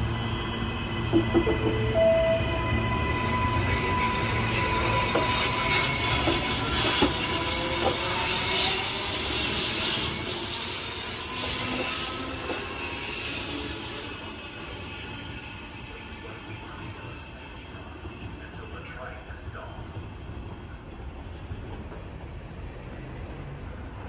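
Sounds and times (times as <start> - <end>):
train wheels squealing: 0.0 - 18.9
electric train running on track: 0.0 - 24.0.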